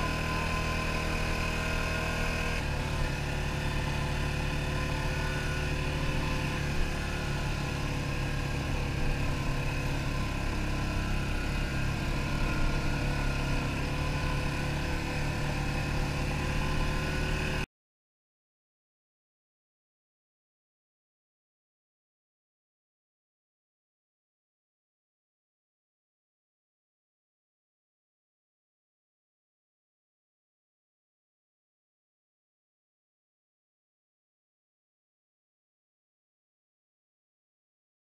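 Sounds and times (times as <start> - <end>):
atv engine running: 0.0 - 17.7.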